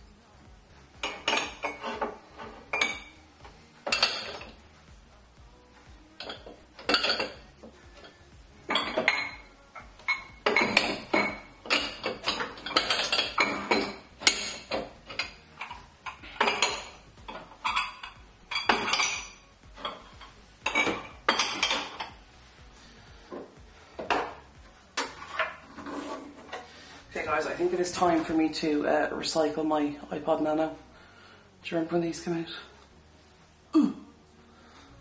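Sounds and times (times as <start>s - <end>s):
mugs and glasses clinking on shelf: 0.9s - 3.2s, 3.8s - 4.6s, 6.2s - 22.2s, 23.3s - 26.9s.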